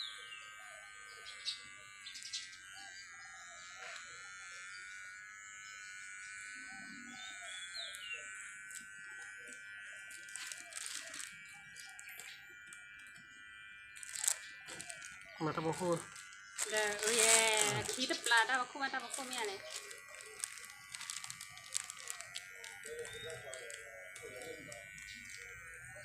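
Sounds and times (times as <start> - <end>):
electric hair clippers buzzing: 0.0 - 26.0
bird chirp: 5.7 - 9.0, 19.6 - 26.0
brief crackles: 19.1 - 25.5.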